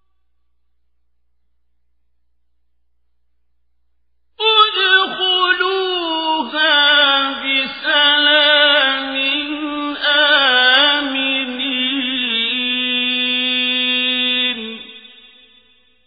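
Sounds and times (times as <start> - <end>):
man chanting melodically: 4.4 - 15.5.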